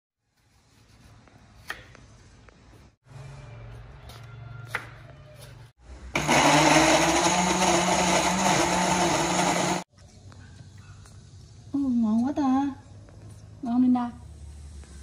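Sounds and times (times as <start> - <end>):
blender running: 6.1 - 9.9.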